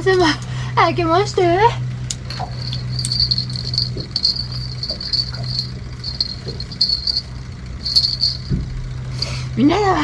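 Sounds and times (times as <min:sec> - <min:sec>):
low hum: 0:02.1 - 0:09.4
small bell jingling: 0:02.3 - 0:08.6.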